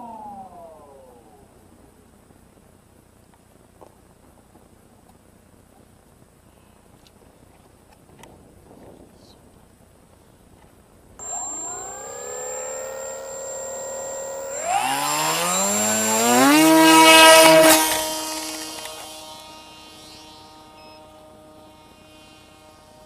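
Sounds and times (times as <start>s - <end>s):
electric motor propeller whine: 0.0s - 1.4s, 11.2s - 23.0s.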